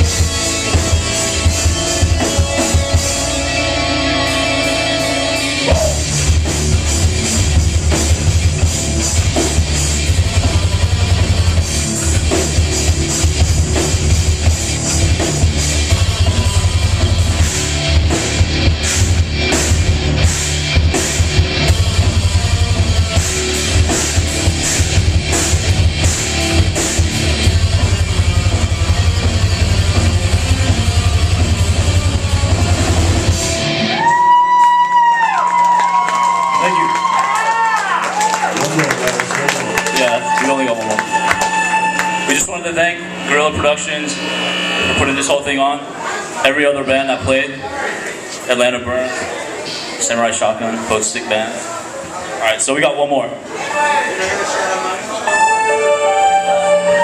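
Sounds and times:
heavy drums: 0.0 - 37.1, 38.6 - 45.6
live rock band playing: 0.0 - 37.1, 38.1 - 46.1, 53.6 - 57.0.

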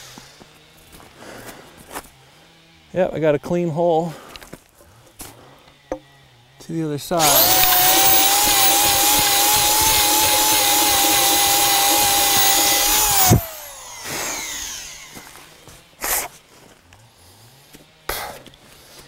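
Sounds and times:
electric drill boring through wood: 7.2 - 15.7.

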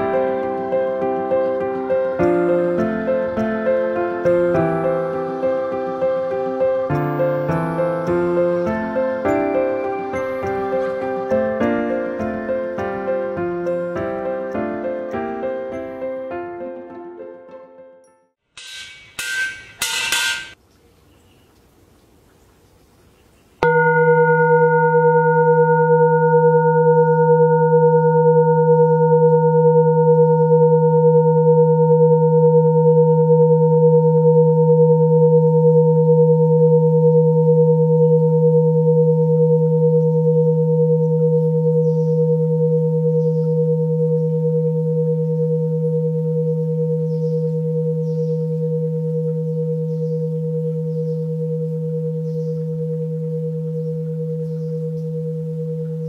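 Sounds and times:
copper bowl ringing: 18.6 - 20.6, 23.6 - 56.0.

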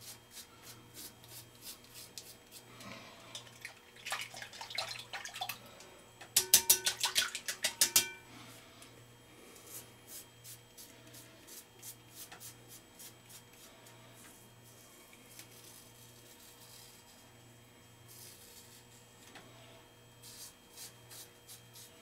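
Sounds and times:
razor scraping stubble: 0.0 - 2.7.

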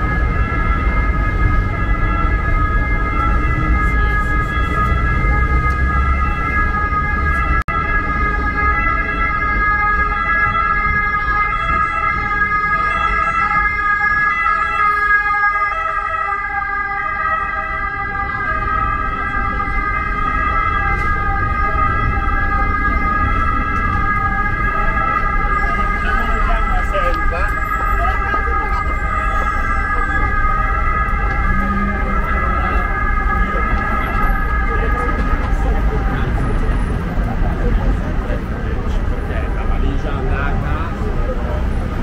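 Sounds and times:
low street rumble: 0.0 - 42.0
siren-like alarm: 0.0 - 42.0.

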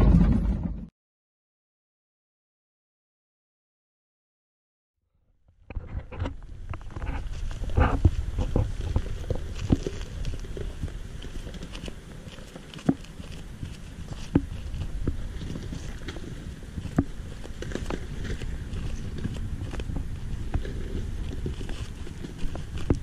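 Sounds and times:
rocks crunching under tyres: 5.7 - 23.0
truck engine rumble: 6.0 - 23.0.

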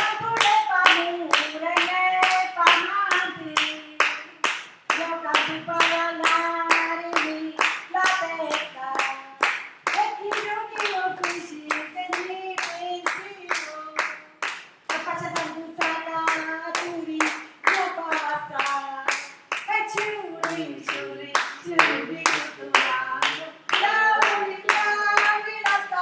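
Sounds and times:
hands clapping: 0.0 - 26.0
person singing: 20.0 - 26.0.

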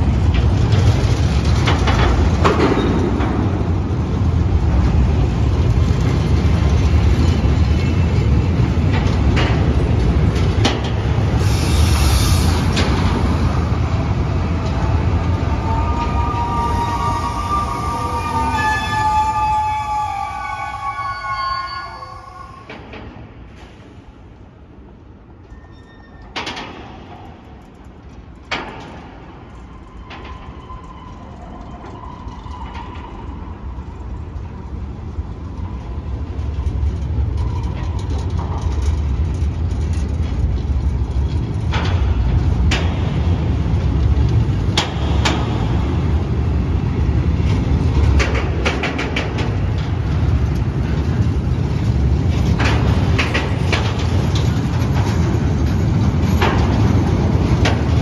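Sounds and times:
freight train rumbling: 0.0 - 25.6, 26.2 - 58.0
faint thin squeal: 15.6 - 22.7, 25.4 - 26.4.

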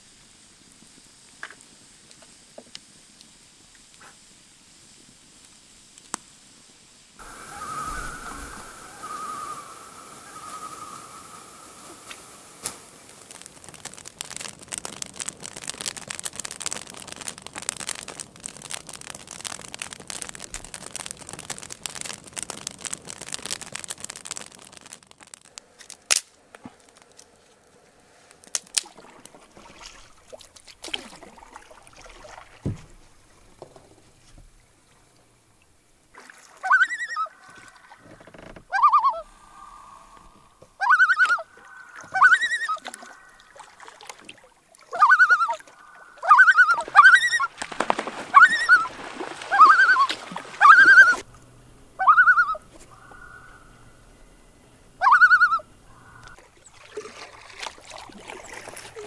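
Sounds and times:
loon calling: 7.2 - 13.4, 36.6 - 43.6, 44.9 - 51.3, 52.0 - 54.4, 55.0 - 56.4
water splashing and trickling: 7.2 - 38.5, 40.8 - 51.4, 56.0 - 59.0.

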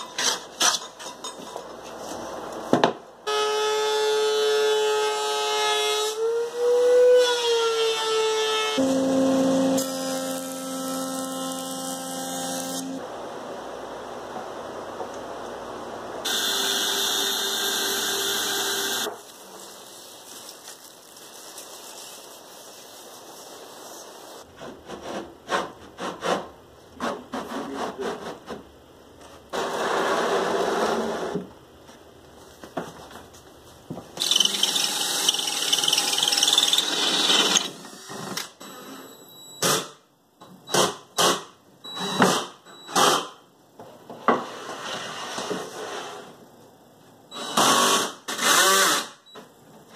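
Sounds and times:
power tools running: 8.8 - 13.0, 16.2 - 19.2, 34.2 - 38.3.

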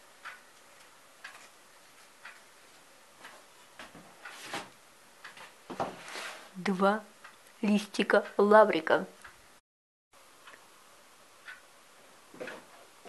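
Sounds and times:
clock ticking: 0.0 - 3.6, 5.1 - 5.6, 7.0 - 9.4, 11.3 - 11.8.

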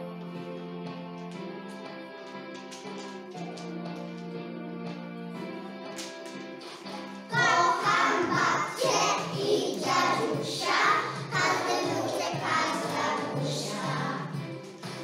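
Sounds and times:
children singing in unison: 7.3 - 14.4.

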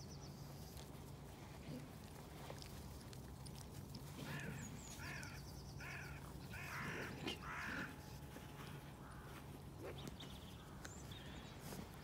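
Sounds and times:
crows cawing: 4.3 - 8.0, 9.0 - 9.5.

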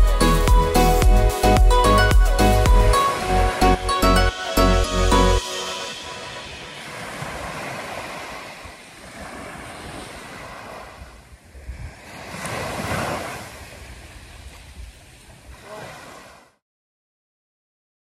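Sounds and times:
waves breaking on beach: 5.4 - 16.6.

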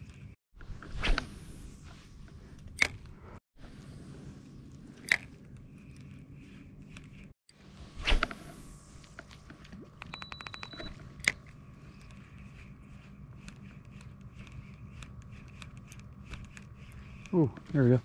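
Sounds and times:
fishing line cast swish: 0.6 - 3.4, 7.7 - 9.2.

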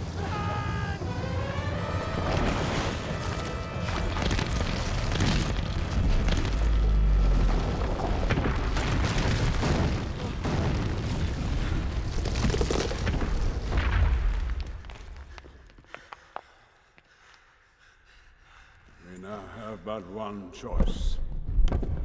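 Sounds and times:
orchestral music: 0.0 - 6.1
rock collapsing with booming crashes: 2.2 - 15.4.

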